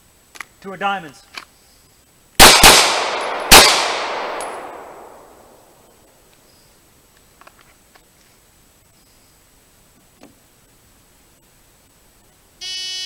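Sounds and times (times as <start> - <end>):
handgun shots echoing: 2.4 - 5.6.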